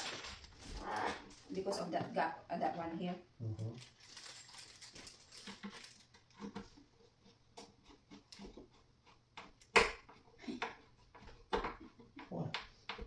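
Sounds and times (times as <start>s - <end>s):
furniture parts clicking and knocking: 7.5s - 13.0s.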